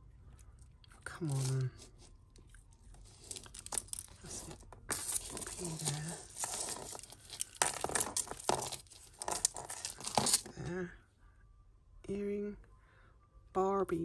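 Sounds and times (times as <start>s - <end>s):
ribbon rustling: 1.2s - 10.5s
beads and chain clicking: 2.7s - 10.5s.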